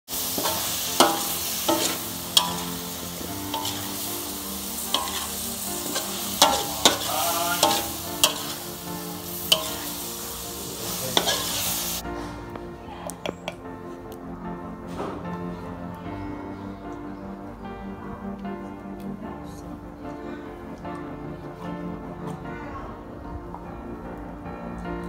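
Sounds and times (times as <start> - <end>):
food sizzling in a wok: 0.1 - 12.0
spatula scraping and striking wok: 0.1 - 12.0.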